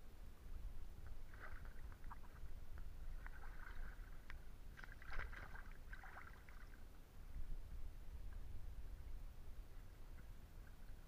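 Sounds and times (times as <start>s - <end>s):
steady low rumble: 0.0s - 11.0s
stream water gurgling over stones: 1.0s - 7.0s.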